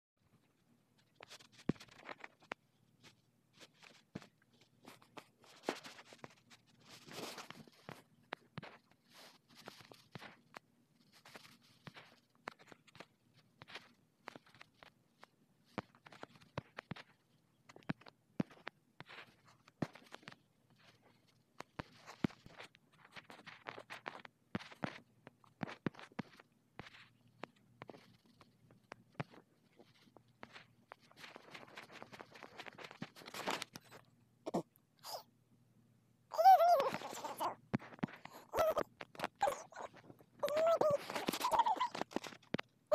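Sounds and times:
faint taps and clicks: 0:07.4 - 0:34.1.

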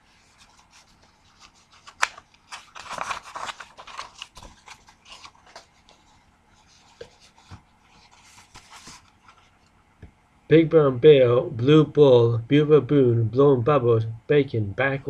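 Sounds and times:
paper rustling: 0:00.1 - 0:09.7
book pages turning: 0:00.2 - 0:09.7.

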